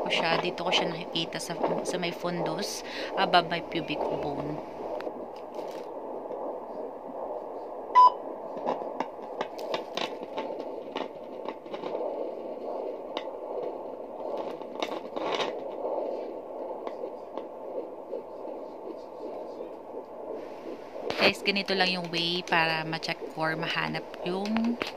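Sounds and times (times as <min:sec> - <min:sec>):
scratchy crackles: 0:00.0 - 0:24.9
static hiss from speaker: 0:00.0 - 0:24.9
short beep: 0:08.0 - 0:08.2.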